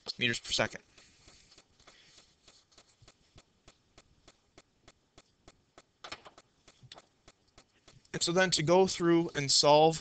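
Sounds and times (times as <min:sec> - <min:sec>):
faint regular ticking: 0:00.1 - 0:09.1.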